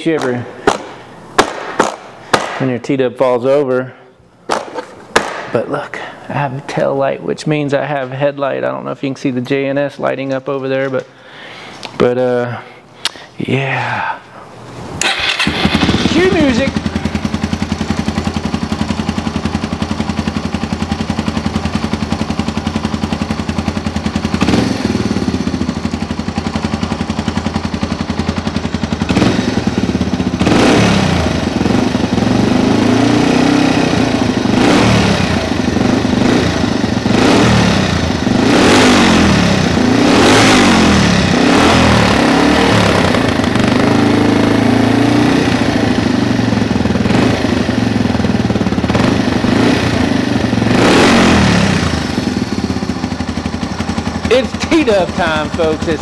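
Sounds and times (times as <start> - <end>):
motorcycle engine idling and revving: 15.0 - 56.0.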